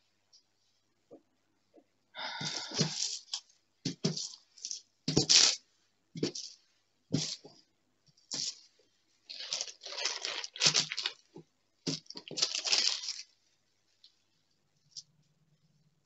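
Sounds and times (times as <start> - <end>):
plastic film crinkling: 2.7 - 5.6, 9.2 - 13.4.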